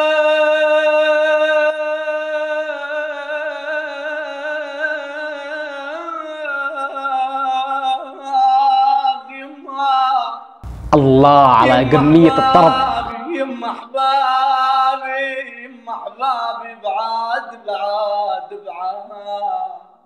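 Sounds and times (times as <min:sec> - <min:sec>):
man singing long held note: 0:10.7 - 0:13.6.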